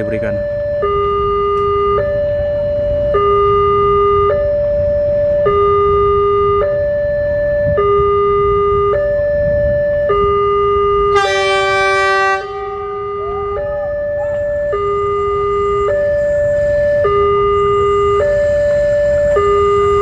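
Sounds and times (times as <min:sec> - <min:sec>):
level-crossing alarm ding-dong: 0:00.0 - 0:04.5, 0:05.4 - 0:20.0
train horn: 0:11.1 - 0:18.1.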